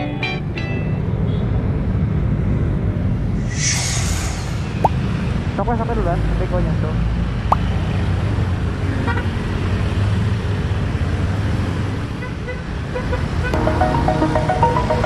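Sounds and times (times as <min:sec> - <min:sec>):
road traffic: 0:00.0 - 0:15.0
electronic music: 0:13.6 - 0:15.0.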